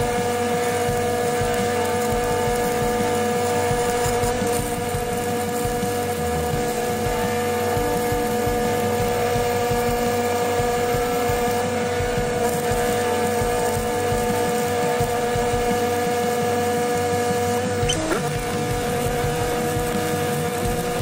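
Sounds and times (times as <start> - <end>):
arc welding crackle: 0.0 - 21.0
steady engine drone: 0.0 - 21.0.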